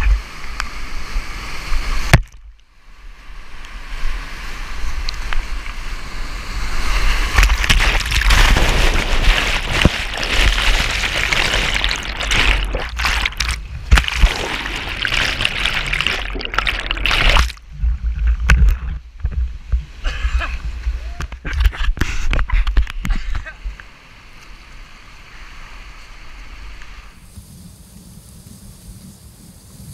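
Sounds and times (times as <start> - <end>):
whitewater rushing and splashing: 4.0 - 17.7.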